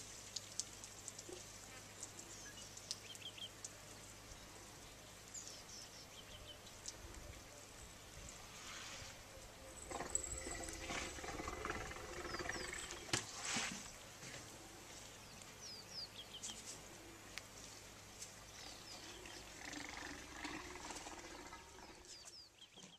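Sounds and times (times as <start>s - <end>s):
small birds chirping: 0.3s - 8.5s, 9.3s - 14.2s, 14.9s - 22.9s
elephant rumbling calls: 9.6s - 13.3s, 19.2s - 22.2s.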